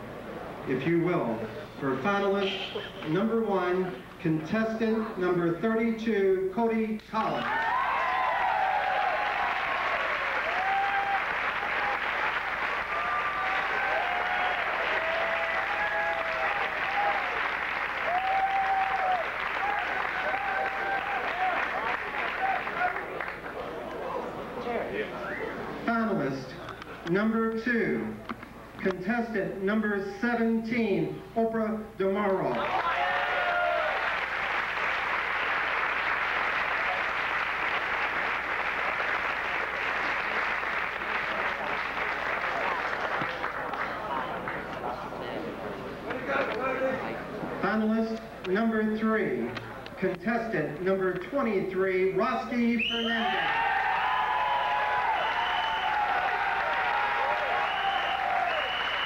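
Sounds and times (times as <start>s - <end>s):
voices whooping: 7.4s - 12.1s, 12.9s - 17.4s, 18.0s - 23.2s, 32.6s - 34.2s, 53.0s - 59.0s
audience clapping: 7.4s - 24.4s, 32.5s - 45.3s, 53.5s - 59.0s.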